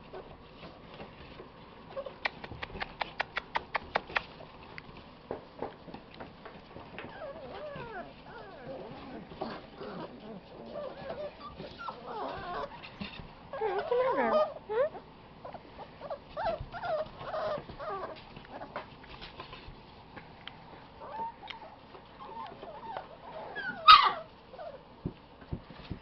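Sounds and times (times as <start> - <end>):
puppies whimpering and yipping: 6.9 - 18.8, 21.0 - 24.9
puppy yelping loudly: 23.4 - 24.7.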